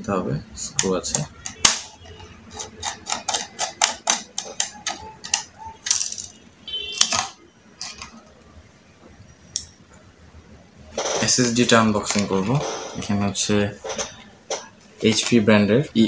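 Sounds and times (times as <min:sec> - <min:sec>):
screwdriver and metal parts clicking: 0:00.8 - 0:06.4.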